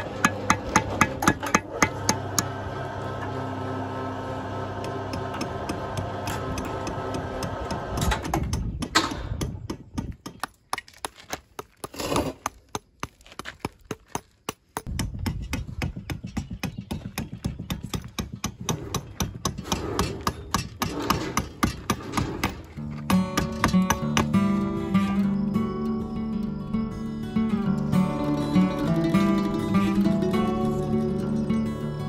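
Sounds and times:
hammer chipping stone: 0:00.0 - 0:02.5, 0:04.8 - 0:24.4.

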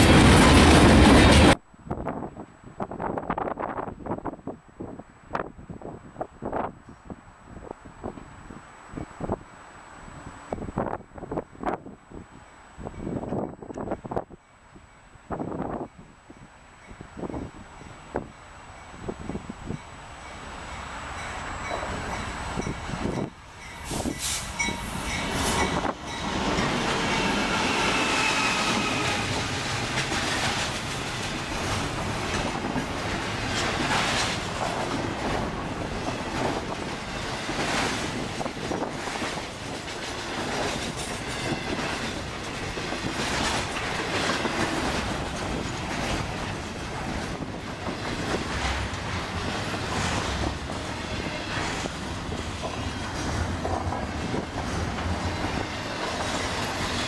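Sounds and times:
freight locomotives passing: 0:00.0 - 0:57.0
wheels clicking over rail joints: 0:29.0 - 0:57.0.

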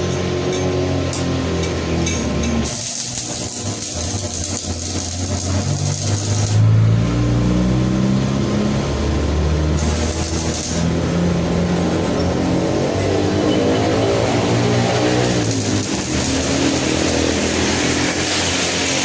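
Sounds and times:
low droning hum: 0:01.6 - 0:07.1, 0:09.8 - 0:12.6
welding arc crackling and hissing: 0:02.6 - 0:06.8, 0:09.8 - 0:11.5, 0:14.7 - 0:19.0.

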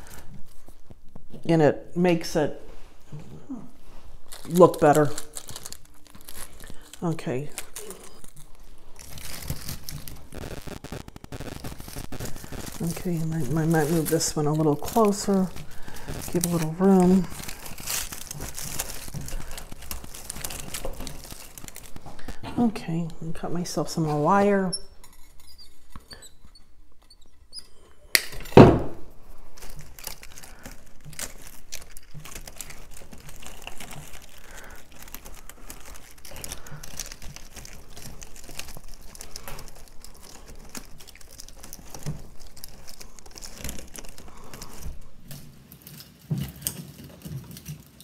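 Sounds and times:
crinkling and rustling greenery: 0:00.0 - 0:48.0
thump: 0:28.6 - 0:29.0.

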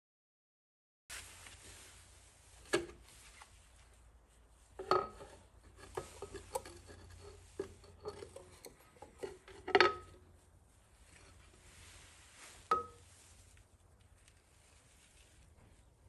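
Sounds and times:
metal cover scraping: 0:04.8 - 0:10.4.

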